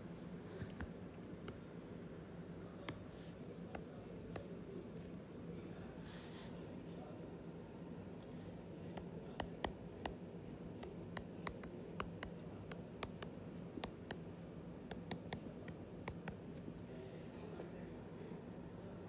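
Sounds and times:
faint steady hum: 0.0 - 19.0
stylus tapping on glass screen: 10.8 - 14.2, 14.9 - 16.4.

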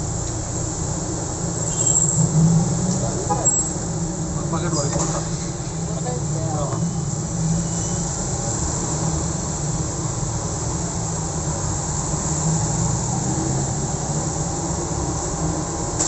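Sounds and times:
vehicles passing close by: 0.0 - 16.0.

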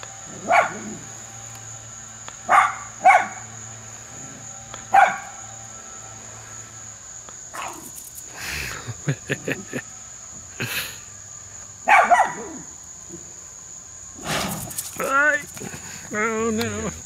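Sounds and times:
high insect buzz: 0.0 - 17.0
dogs barking: 0.3 - 1.1, 2.4 - 3.6, 4.8 - 5.4, 7.5 - 7.9, 11.8 - 12.7
dogs playing: 14.2 - 17.0.

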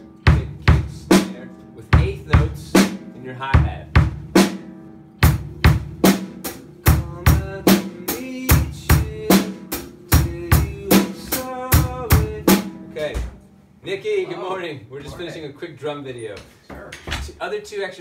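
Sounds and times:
drum kit playing rock beat: 0.0 - 13.5.

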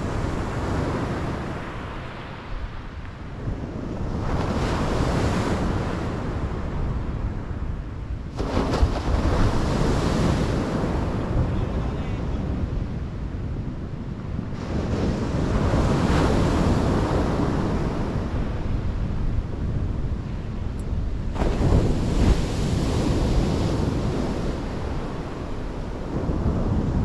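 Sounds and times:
wind rumbling on microphone: 0.0 - 27.0
surf breaking on beach: 8.3 - 12.7, 21.2 - 27.0.

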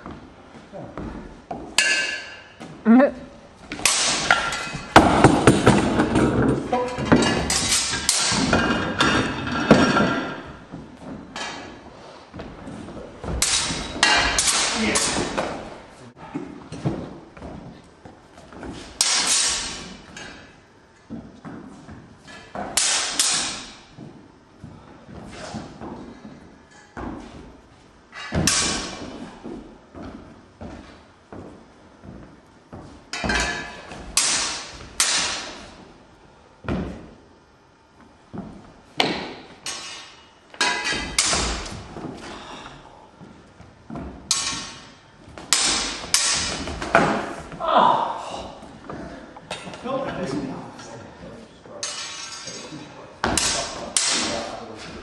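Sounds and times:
swords clanging: 1.8 - 2.5, 3.8 - 4.9, 6.8 - 10.6, 13.3 - 15.7, 18.9 - 20.4, 22.8 - 23.8, 28.2 - 29.1, 33.1 - 35.6, 39.6 - 41.8, 44.3 - 47.3, 51.8 - 55.0.

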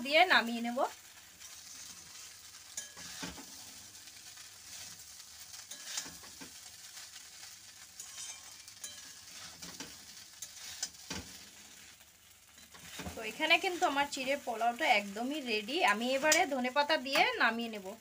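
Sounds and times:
rice sizzling in oil: 0.0 - 18.0
spatula scraping metal pan: 1.4 - 3.6, 4.7 - 6.6, 8.0 - 11.4, 12.6 - 14.1.

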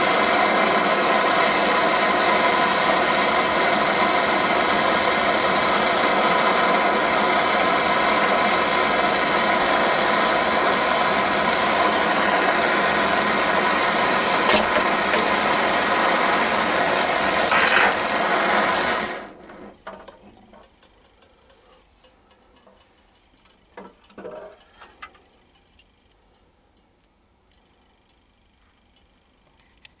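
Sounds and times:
gas burner rushing: 0.0 - 20.7.

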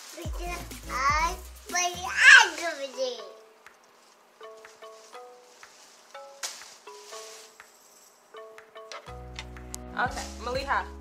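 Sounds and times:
plucked notes melody: 4.4 - 7.6, 8.3 - 11.0.

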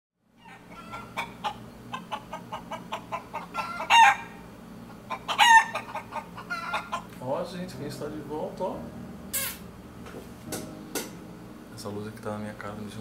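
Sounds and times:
chicken squawks: 0.4 - 7.1, 9.3 - 9.6
chicken clucking: 0.4 - 7.2.

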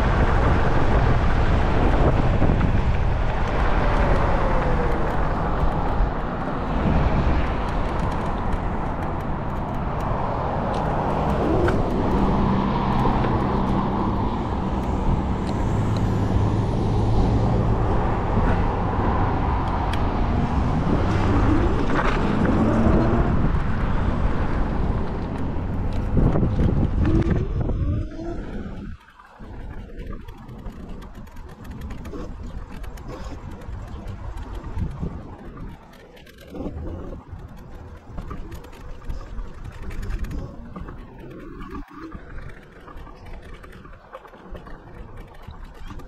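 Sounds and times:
car traffic: 0.0 - 46.0
wind and road noise: 0.0 - 46.0.

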